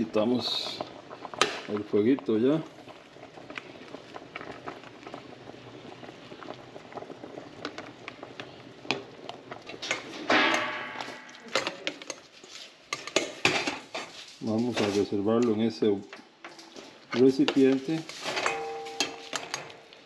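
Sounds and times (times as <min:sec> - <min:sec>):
water bubbling in pot: 0:00.0 - 0:13.9
metal scraping against pot: 0:09.5 - 0:15.5, 0:16.4 - 0:20.0.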